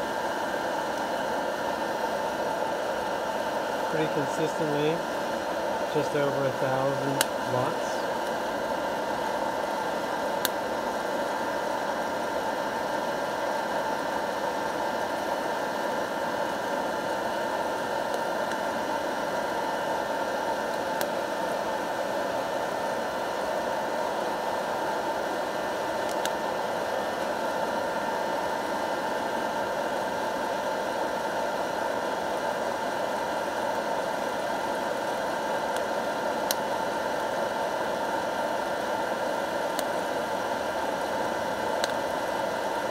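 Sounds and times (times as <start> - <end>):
coffee roaster fan blowing: 0.0 - 42.9.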